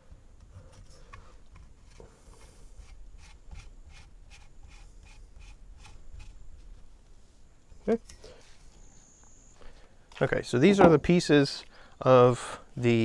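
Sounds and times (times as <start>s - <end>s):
hands rubbing plastic hose fitting: 0.7s - 6.8s.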